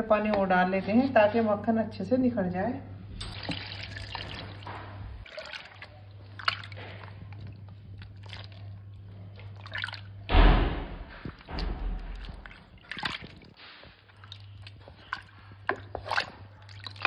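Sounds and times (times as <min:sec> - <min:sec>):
wet sloshing and squelching butter: 0:03.4 - 0:10.3, 0:11.0 - 0:17.0.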